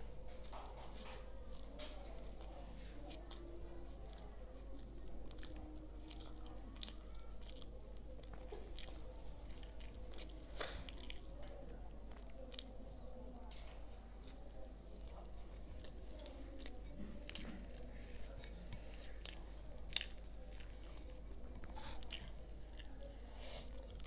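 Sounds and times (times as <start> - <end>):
person chewing food: 0.0 - 24.0.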